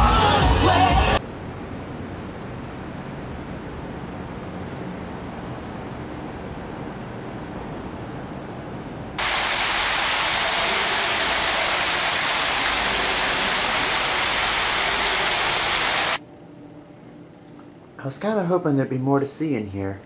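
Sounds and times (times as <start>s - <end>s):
fountain water splashing: 9.2s - 16.2s.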